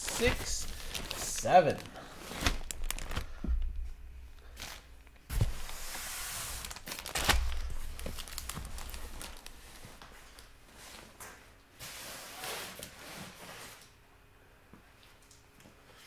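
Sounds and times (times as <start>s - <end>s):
packaging rustling and crinkling: 0.0s - 3.8s, 4.4s - 11.0s.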